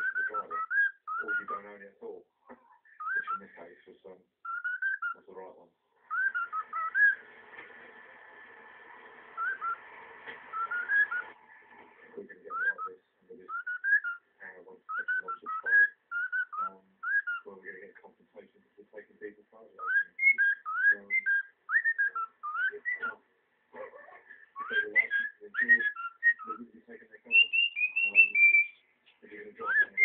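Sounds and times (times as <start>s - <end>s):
cockatiel chattering: 0.0s - 1.6s, 3.0s - 3.5s, 4.5s - 5.2s, 6.1s - 7.2s, 9.4s - 9.8s, 10.5s - 11.3s, 12.5s - 12.9s, 13.5s - 14.2s, 14.9s - 17.5s, 19.8s - 23.2s, 24.6s - 26.6s, 27.3s - 28.8s
cockatiel whistling: 0.0s - 1.6s, 3.0s - 3.5s, 4.5s - 5.2s, 6.1s - 7.2s, 9.4s - 9.8s, 10.5s - 11.4s, 12.5s - 14.2s, 14.9s - 17.5s, 19.8s - 23.2s, 24.5s - 26.6s, 27.3s - 28.8s, 29.6s - 30.0s.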